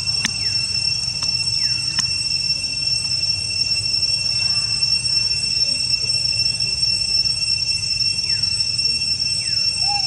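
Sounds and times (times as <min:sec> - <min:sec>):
insects droning: 0:00.0 - 0:10.0.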